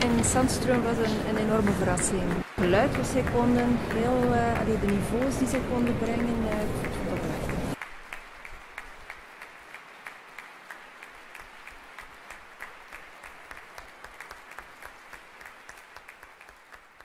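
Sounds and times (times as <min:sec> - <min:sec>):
audience applauding: 0:00.0 - 0:17.0.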